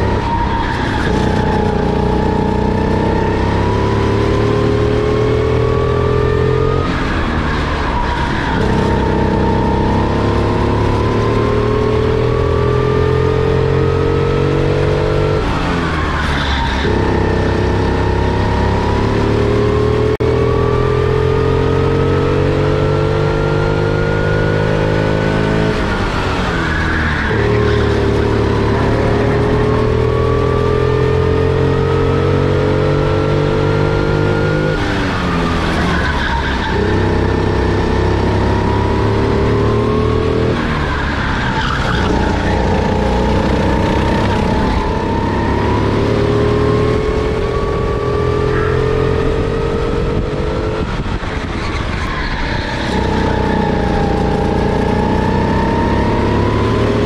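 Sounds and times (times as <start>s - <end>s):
kart engine at full throttle: 0.0s - 57.0s
tyre squeal: 15.3s - 17.6s, 25.5s - 29.8s, 34.4s - 39.1s, 39.8s - 46.0s, 51.2s - 54.4s.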